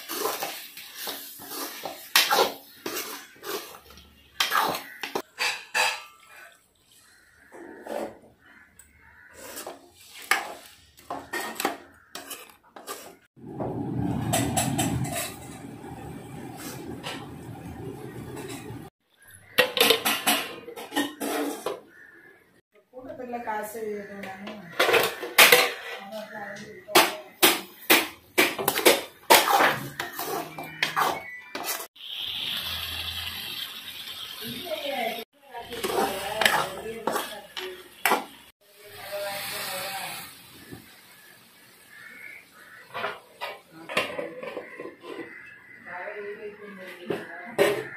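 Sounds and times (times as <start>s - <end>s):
ladle scraping metal pot: 0.0s - 6.5s, 9.3s - 18.9s, 19.6s - 21.8s, 28.6s - 31.9s, 35.6s - 38.2s, 42.9s - 45.6s
ladle scraping and clinking pan: 19.6s - 21.8s.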